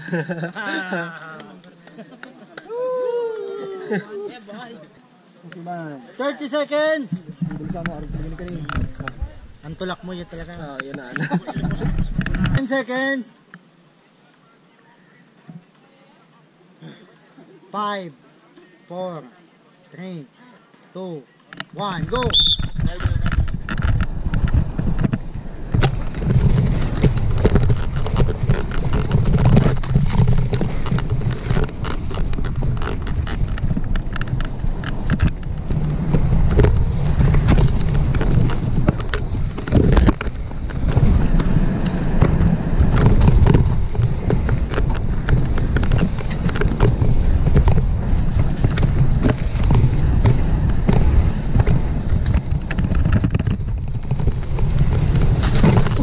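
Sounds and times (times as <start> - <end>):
bike tyres rumbling on dirt: 7.1 - 12.6, 21.9 - 56.0
bike rattling and clattering: 7.2 - 12.6, 22.0 - 56.0.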